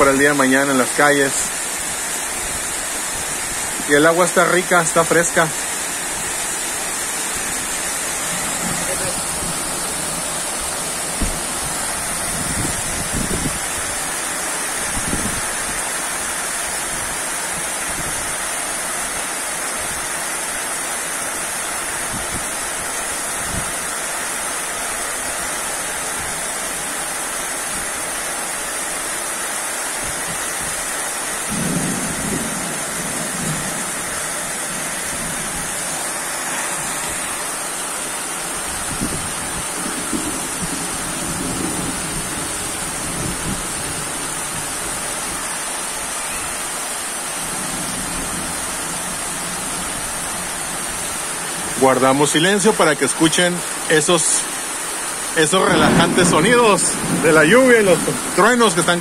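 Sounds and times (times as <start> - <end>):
heavy rain on roofs and street: 0.0 - 59.0
low rumbles of thunder: 7.9 - 14.0, 31.5 - 35.8, 38.7 - 45.0, 55.6 - 58.4.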